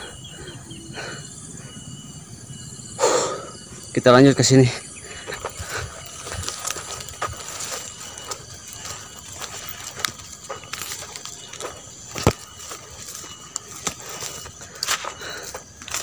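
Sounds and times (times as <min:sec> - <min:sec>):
footsteps on dirt trail: 0:03.5 - 0:16.0.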